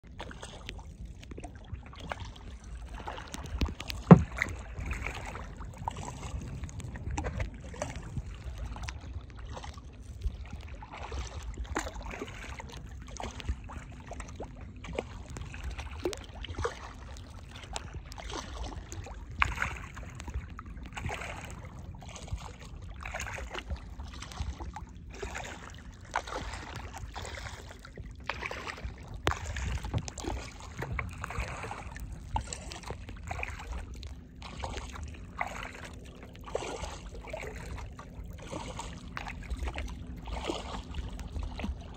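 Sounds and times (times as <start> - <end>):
paddle strokes splashing: 0.1 - 41.9
low rumble: 0.8 - 11.7, 19.0 - 35.2, 36.0 - 41.9.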